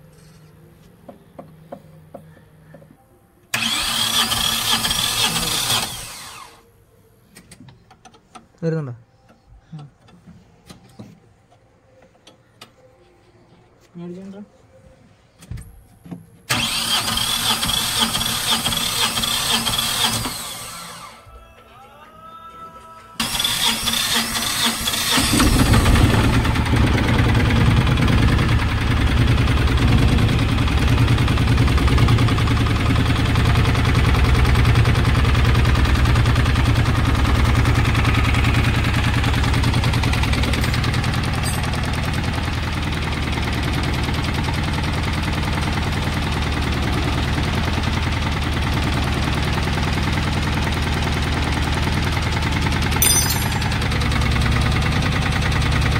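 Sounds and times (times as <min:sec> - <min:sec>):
starter motor cranking: 0:03.5 - 0:06.6, 0:16.5 - 0:21.2, 0:23.2 - 0:42.3
engine idling: 0:23.2 - 0:55.9.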